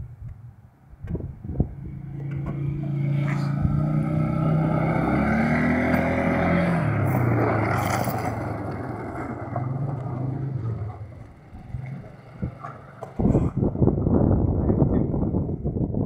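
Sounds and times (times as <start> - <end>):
atv engine revving: 1.5 - 13.9.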